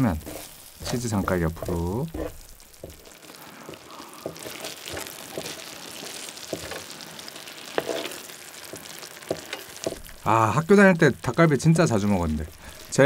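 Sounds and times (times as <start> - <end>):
spatula scraping and tapping: 0.0 - 6.9, 7.7 - 10.1
food sizzling on a griddle: 0.0 - 13.0.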